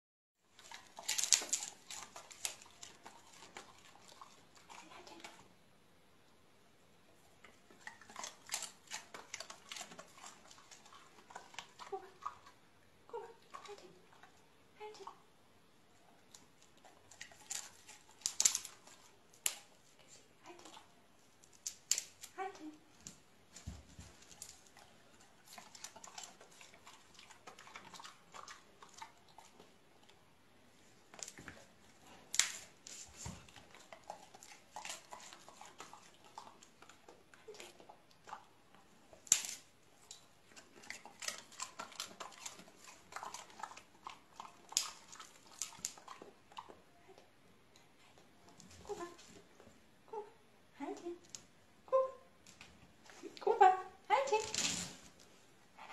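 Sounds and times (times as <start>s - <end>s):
dogs chewing treats: 0.5s - 5.4s, 7.3s - 12.7s, 16.4s - 19.8s, 23.6s - 30.2s, 31.1s - 46.9s.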